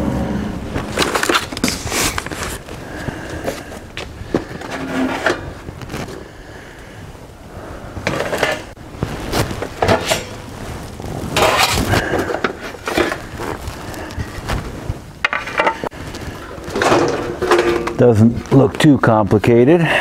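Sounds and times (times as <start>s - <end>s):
sheet metal parts clanking: 4.3s - 5.6s, 9.6s - 10.4s, 15.2s - 15.9s, 16.5s - 18.3s.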